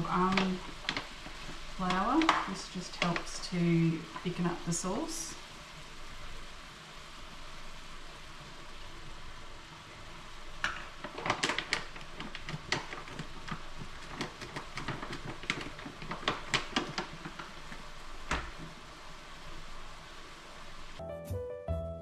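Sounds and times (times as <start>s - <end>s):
meat sizzling in a pan: 0.0s - 21.0s.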